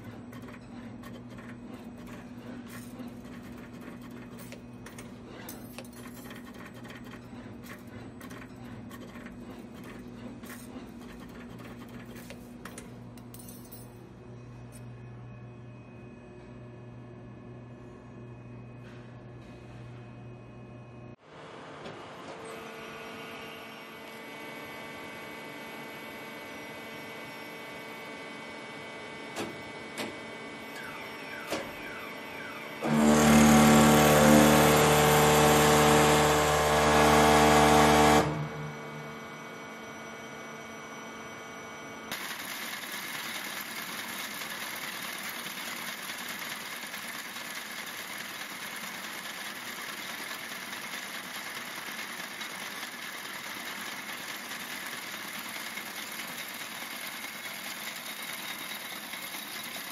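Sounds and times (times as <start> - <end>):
machine whirring clatter: 0.0 - 13.7, 42.1 - 59.9
machine hum: 30.4 - 59.9
loud steady buzz: 31.9 - 41.4.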